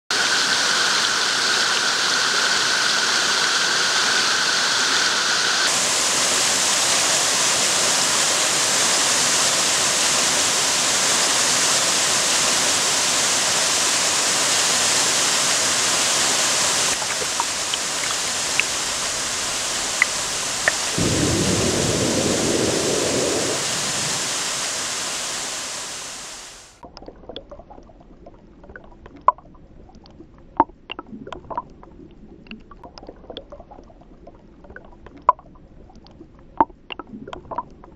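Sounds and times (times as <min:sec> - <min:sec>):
waterfall rushing: 0:00.2 - 0:26.8.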